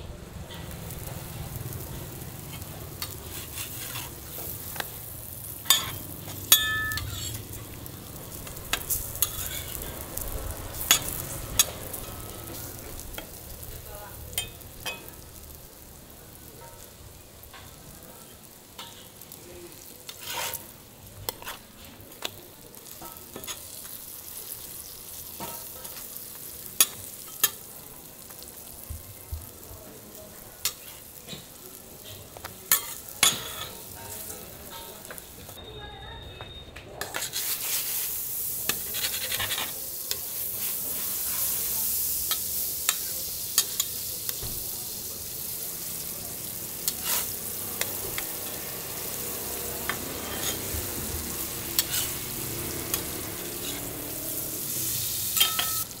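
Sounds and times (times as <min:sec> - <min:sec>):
flatbread sizzling in oil: 0:00.2 - 0:35.6, 0:37.0 - 0:56.0
metal spatula scraping griddle: 0:00.5 - 0:05.0, 0:05.6 - 0:07.6, 0:08.4 - 0:13.3, 0:18.4 - 0:19.3, 0:20.0 - 0:22.0, 0:30.6 - 0:35.2, 0:37.0 - 0:41.7, 0:46.7 - 0:55.8.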